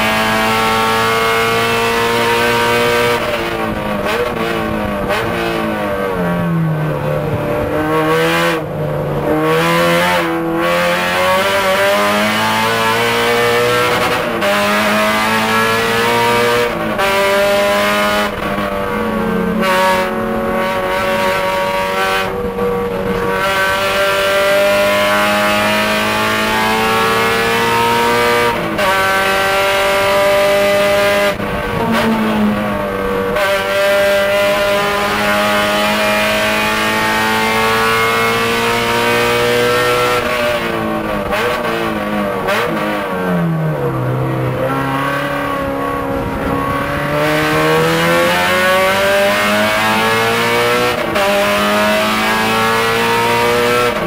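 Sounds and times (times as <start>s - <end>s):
race car engine revving: 0.0s - 54.0s.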